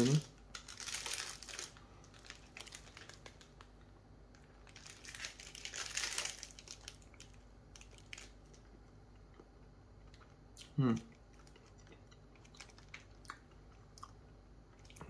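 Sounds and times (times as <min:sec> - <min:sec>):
food packaging crinkling: 0:00.0 - 0:08.6, 0:11.4 - 0:13.2.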